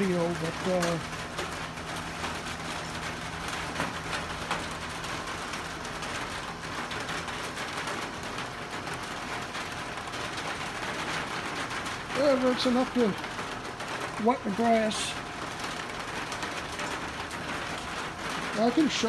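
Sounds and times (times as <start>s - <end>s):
rain on a tin roof: 0.0s - 19.0s.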